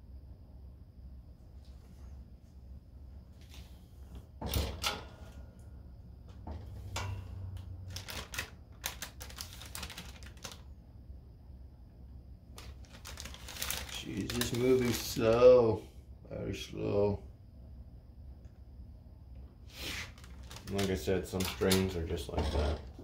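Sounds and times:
faint low hum: 0.0s - 23.0s
paper crinkling: 7.9s - 10.7s, 12.6s - 15.4s, 19.8s - 22.0s.

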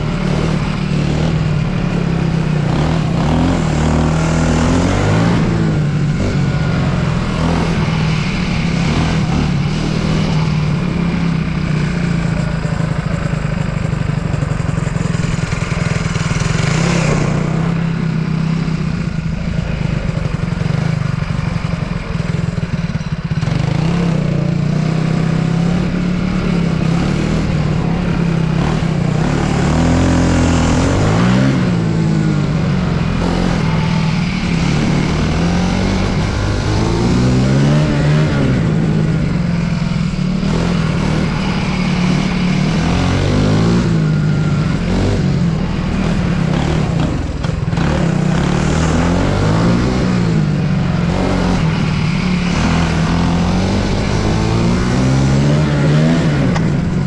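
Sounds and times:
racing kart engine revving: 0.0s - 57.0s.

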